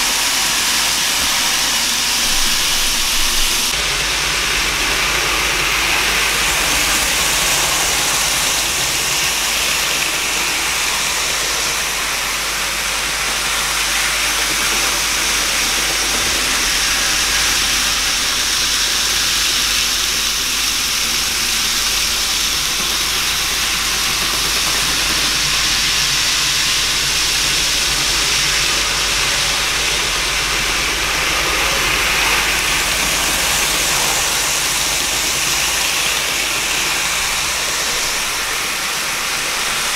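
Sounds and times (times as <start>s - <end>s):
model trains whirring on track: 0.0s - 39.9s.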